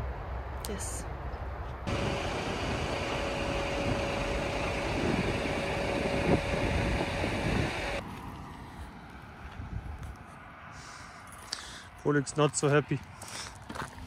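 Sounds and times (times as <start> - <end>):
steady whine: 1.9 - 8.0
vehicle engines idling: 1.9 - 14.0.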